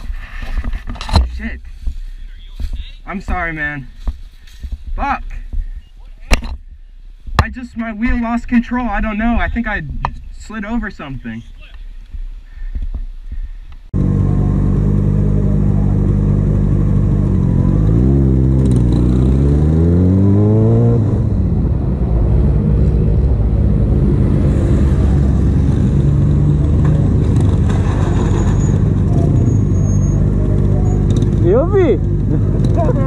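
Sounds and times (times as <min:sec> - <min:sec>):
motorcycle engine accelerating: 0:14.0 - 0:33.0.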